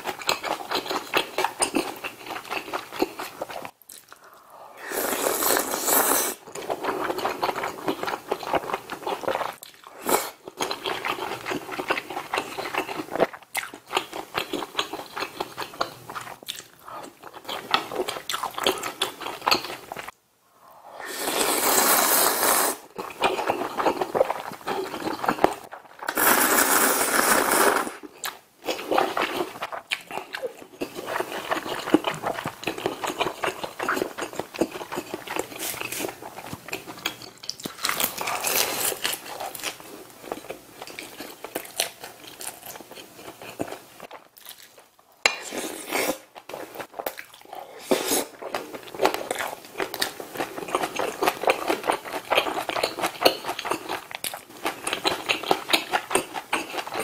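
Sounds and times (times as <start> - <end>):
wet chewing and smacking: 0.0 - 4.4, 6.5 - 20.1, 28.1 - 44.9, 48.4 - 57.0
loud noodle slurps: 4.8 - 6.4, 20.9 - 22.9, 26.1 - 28.0, 47.8 - 48.4.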